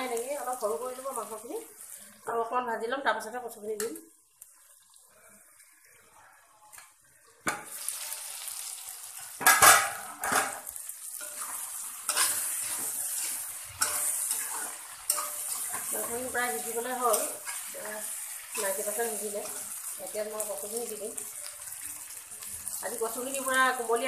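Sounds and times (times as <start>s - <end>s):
chicken sizzling in oil: 0.0s - 2.3s, 3.5s - 24.0s
metal spatula scraping pan: 9.2s - 19.9s.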